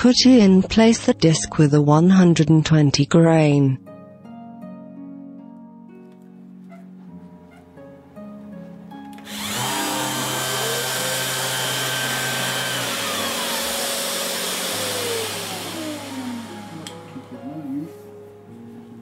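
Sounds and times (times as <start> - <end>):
orbital sander whirring: 9.2 - 17.3.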